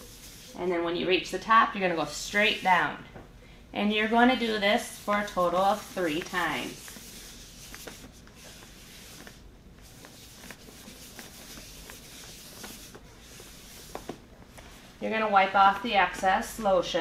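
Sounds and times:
gloved hands rubbing: 0.0 - 0.6, 4.5 - 14.9.

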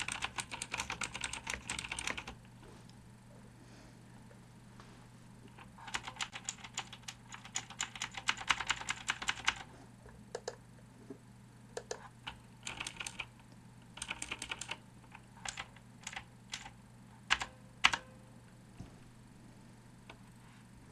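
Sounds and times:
clicky keyboard typing: 0.0 - 2.4, 5.5 - 9.7, 10.3 - 10.6, 11.8 - 13.3, 14.0 - 16.7, 17.3 - 18.1.

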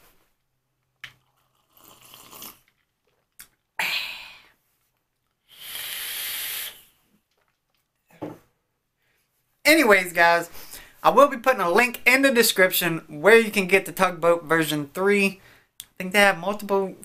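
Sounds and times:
sips from a mug: 1.0 - 3.3
vape inhale hiss: 5.4 - 7.0
sharp breath out: 5.5 - 7.0.

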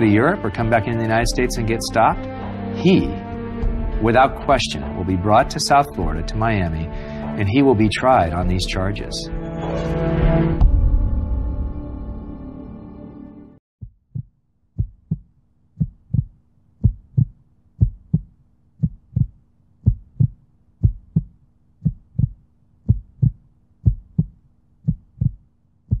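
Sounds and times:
heartbeat double thump: 10.6 - 11.1, 13.8 - 26.0
faint steady hum: 14.8 - 26.0.

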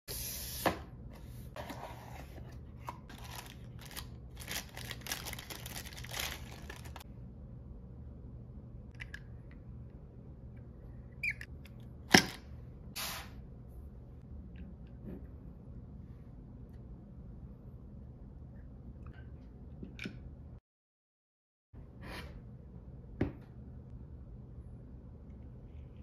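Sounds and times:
cardboard packaging rustling: 3.0 - 7.0.

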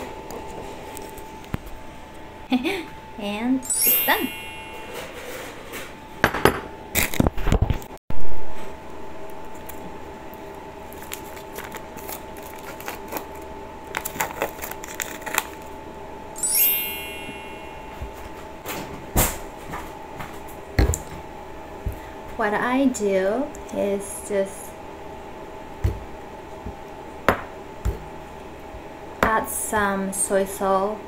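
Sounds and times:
steady hum: 0.0 - 31.0
sauce sachet torn and squeezed: 10.9 - 15.7.

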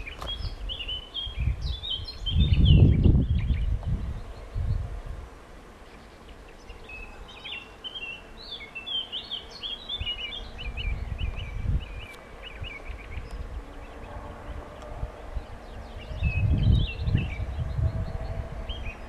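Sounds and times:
songbird chirping: 0.0 - 5.0, 5.7 - 19.0
wind rumbling on microphone: 0.0 - 5.5, 9.8 - 19.0.

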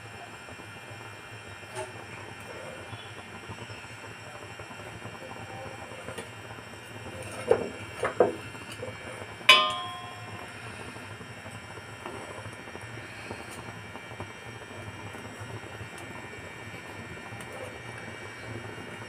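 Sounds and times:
metal spatula knocking griddle: 9.5 - 10.4
metallic clank: 9.5 - 10.4.

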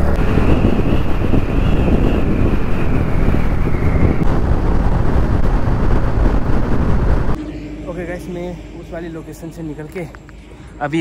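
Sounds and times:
wind buffeting the microphone: 0.0 - 7.4
scooter running and road rumble: 0.0 - 8.5
thin high whine: 0.0 - 11.0.

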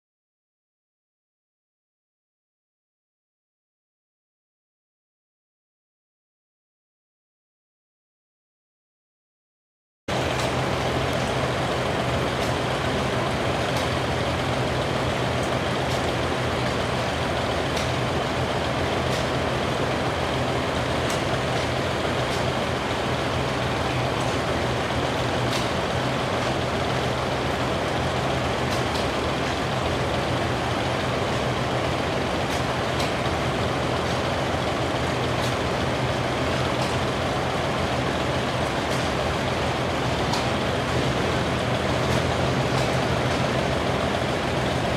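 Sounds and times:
tractor engines idling: 10.1 - 44.9.

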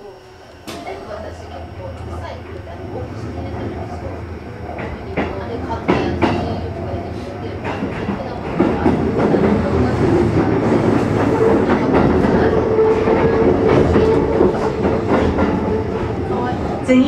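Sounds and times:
steady hum: 0.0 - 17.0
train wheels rumbling on rail: 0.7 - 17.0.

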